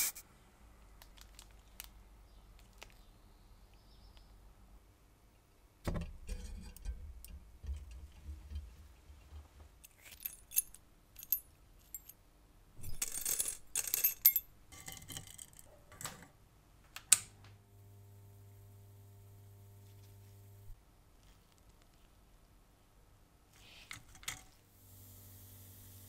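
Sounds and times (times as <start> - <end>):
metal parts clinking in wire basket: 12.8 - 15.5
faint steady hum: 16.3 - 26.0.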